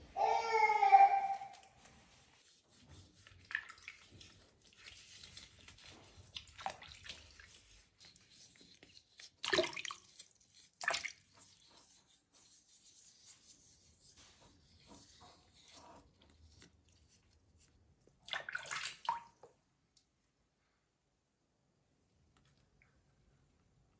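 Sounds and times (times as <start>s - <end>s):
water sloshing in a plastic tub: 2.6s - 12.4s, 14.2s - 19.6s.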